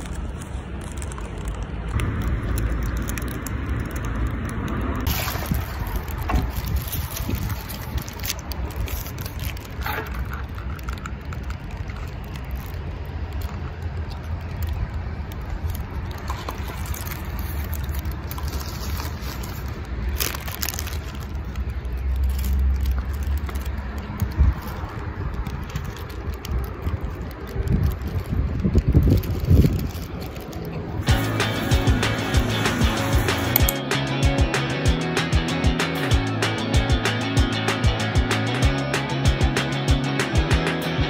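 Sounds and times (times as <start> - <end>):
paper wrapper crinkling: 0.0 - 33.9
wind buffeting microphone: 1.9 - 12.0, 24.0 - 31.2.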